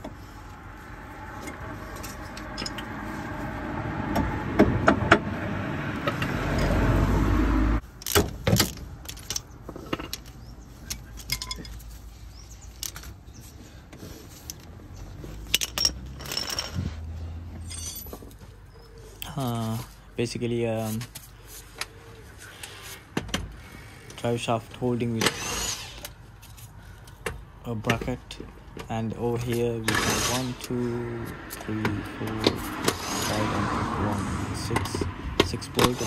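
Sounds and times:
metal tools clinking: 1.4 - 3.1, 6.5 - 6.8, 8.0 - 12.0, 14.3 - 18.4.

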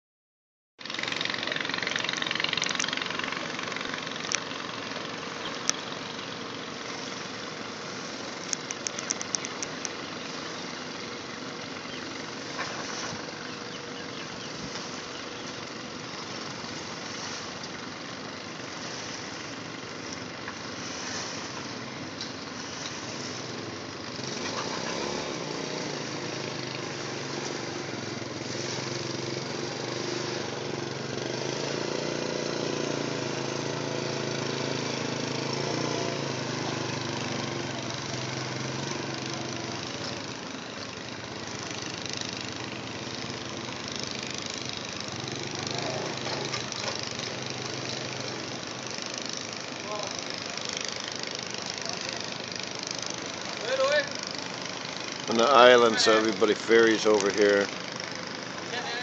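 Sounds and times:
boat engine running: 0.8 - 59.0
rapid clicks: 8.4 - 10.0.

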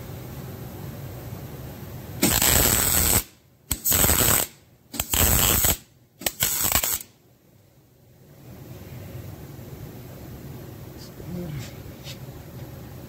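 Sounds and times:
welding arc bursts: 2.2 - 7.1.

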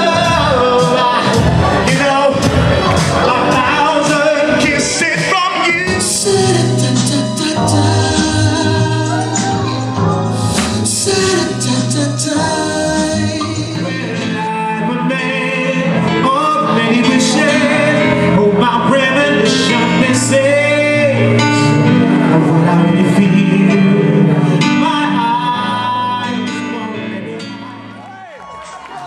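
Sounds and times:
man singing: 0.0 - 27.9
electric keyboard: 0.0 - 28.3.

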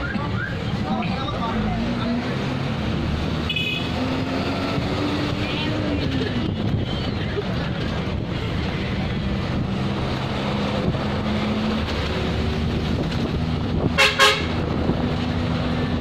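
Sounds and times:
road noise: 0.0 - 16.0
vehicle horn toots: 3.5 - 3.9, 14.0 - 14.6.

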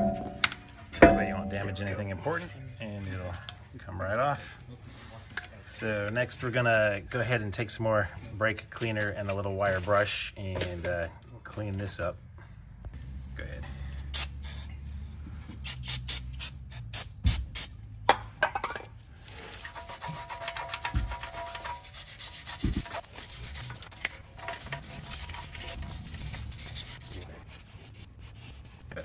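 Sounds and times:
wire brush scrubbing metal: 0.0 - 2.2, 19.2 - 29.0.

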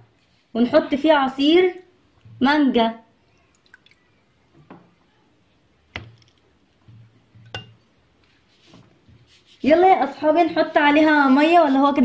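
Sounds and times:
drips and light clicks: 3.3 - 4.1.

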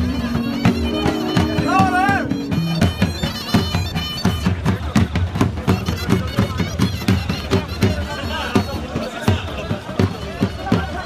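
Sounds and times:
reed pipe playing: 0.0 - 4.7.

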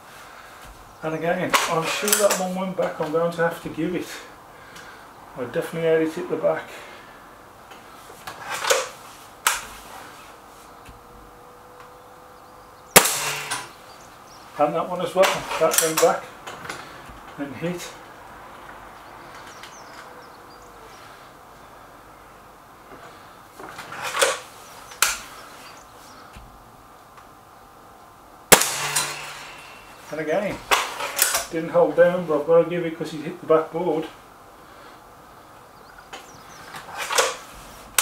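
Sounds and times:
air rifle barrel rasping open: 7.8 - 11.2, 23.6 - 26.4, 36.7 - 38.0
air rifle barrel clacking shut: 8.2 - 9.9, 15.2 - 17.3.

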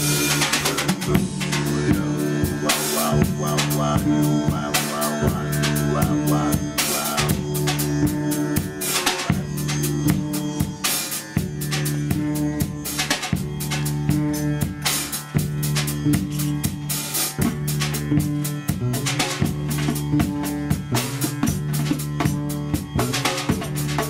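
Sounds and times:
drum kit beat: 0.0 - 24.0
plucked bass guitar line: 0.0 - 24.0
sustained low held notes: 0.0 - 24.0.

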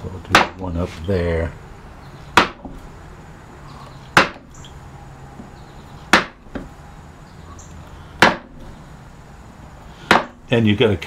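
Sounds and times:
mallet striking gouge handle: 4.2 - 4.4, 6.1 - 6.7, 8.2 - 8.5, 10.1 - 10.4.

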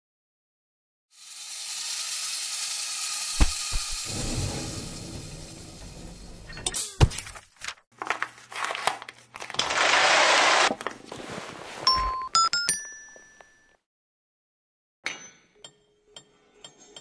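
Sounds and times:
papery rustling: 7.1 - 12.1.

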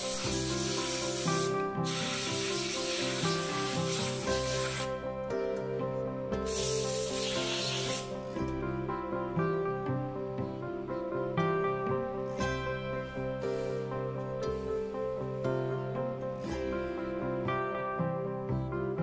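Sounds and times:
compressed air blow gun hissing: 0.0 - 4.9, 6.4 - 8.2
background music: 0.0 - 19.0.

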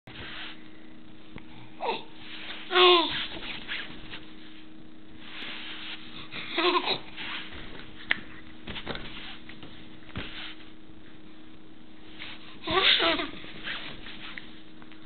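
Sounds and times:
baby cooing: 6.5 - 7.0.

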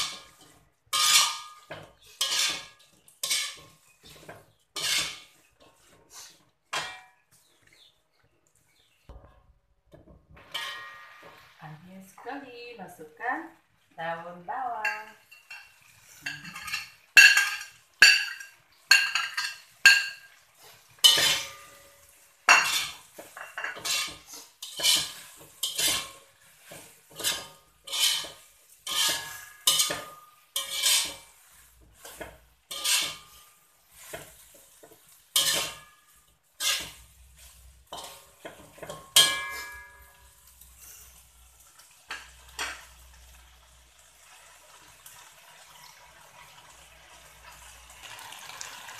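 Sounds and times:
metal spatula scraping wok: 0.0 - 7.9, 10.3 - 12.4, 14.7 - 43.6.

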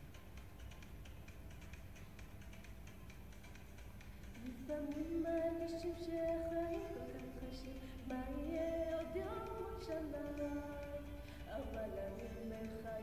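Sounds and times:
woman singing unaccompanied: 4.4 - 13.0.

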